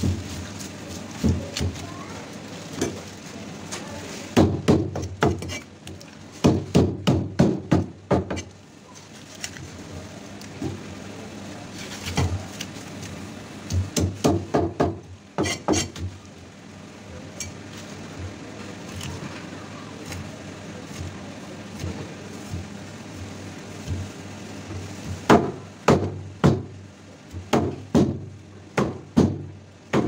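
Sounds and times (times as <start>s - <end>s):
knife scraping fish scales: 5.4s - 5.7s.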